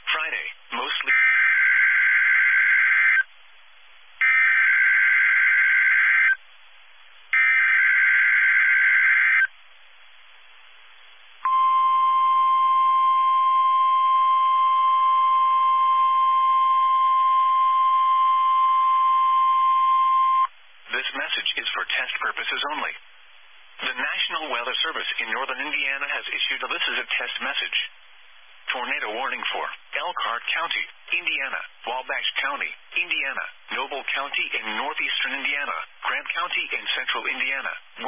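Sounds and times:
steady warning alarm tone: 0:01.1 - 0:03.3, 0:04.2 - 0:06.4, 0:07.4 - 0:09.5, 0:11.4 - 0:20.5.

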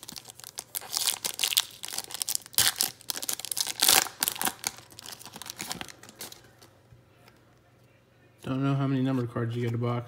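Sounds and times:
foil wrapper tearing and crinkling: 0:00.0 - 0:06.4.

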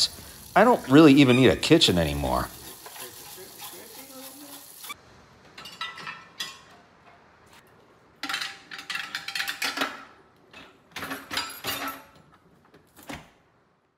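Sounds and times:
dishwasher rack rolling: 0:08.2 - 0:12.3
grill parts clattering on wire rack: 0:08.2 - 0:12.3.

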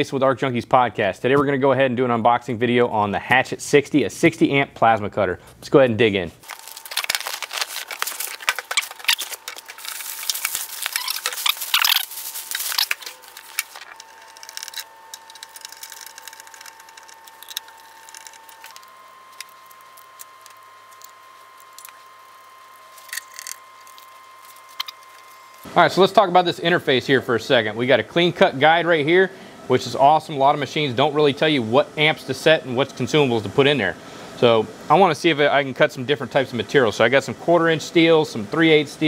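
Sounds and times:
cardboard and plastic rustling: 0:06.4 - 0:25.7.

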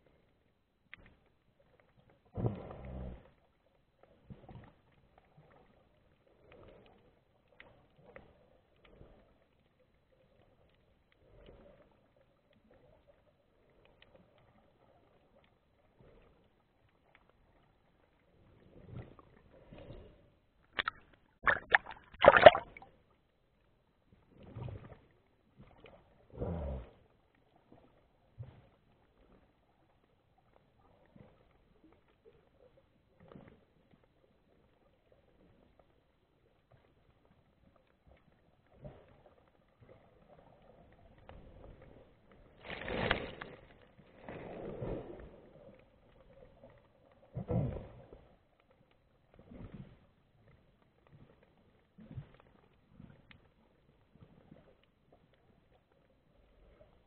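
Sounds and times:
muffled underwater sloshes and gurgles: 0:00.0 - 0:57.0
underwater rushing swishes: 0:18.4 - 0:23.0, 0:39.3 - 0:48.3
water splashing loudly: 0:20.8 - 0:22.8.

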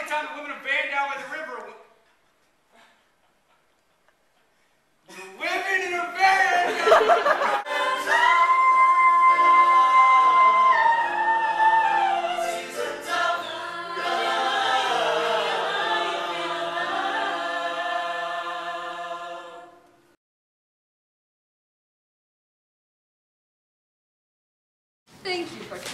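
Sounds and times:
group of voices singing in harmony: 0:06.7 - 0:20.2.

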